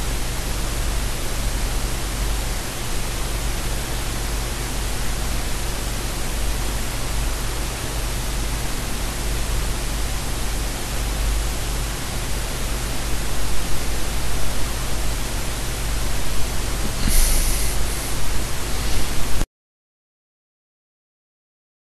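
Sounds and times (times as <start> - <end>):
static hiss: 0.0 - 19.5.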